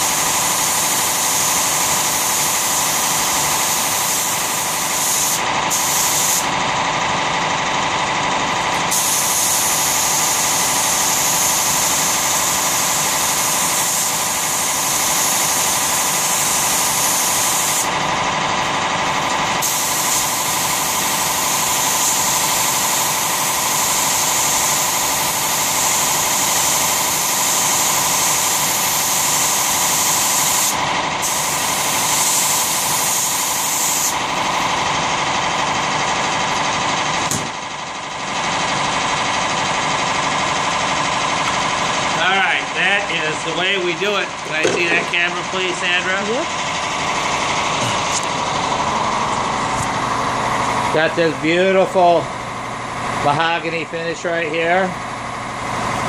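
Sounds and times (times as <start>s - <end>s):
spray gun hissing: 0.0s - 6.5s, 8.9s - 17.9s, 19.6s - 34.2s
air compressor running: 0.0s - 56.0s.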